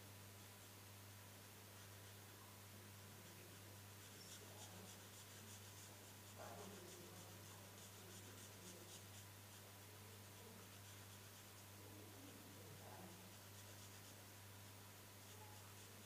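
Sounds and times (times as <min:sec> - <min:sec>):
marker scratching on paper: 0:04.0 - 0:09.6.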